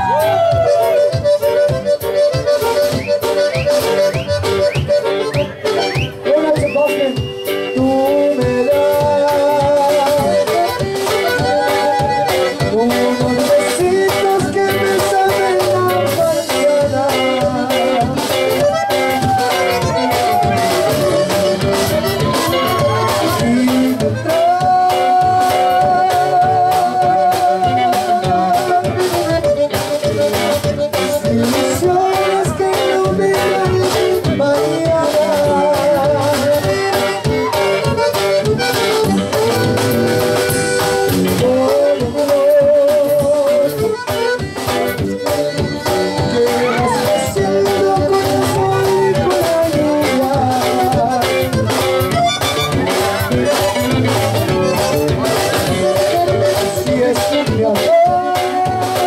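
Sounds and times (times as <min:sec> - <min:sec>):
bajo sexto strumming: 0:00.0 - 0:59.0
drum kit beat: 0:00.0 - 0:59.0
electric bass: 0:00.0 - 0:59.0
button accordion melody: 0:00.1 - 0:59.0.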